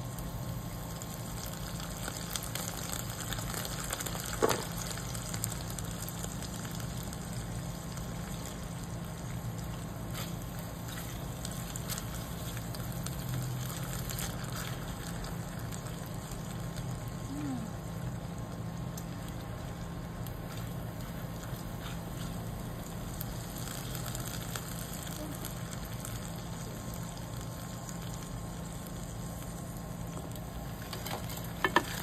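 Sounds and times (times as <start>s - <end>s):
paste sizzling in oil: 0.0s - 32.0s.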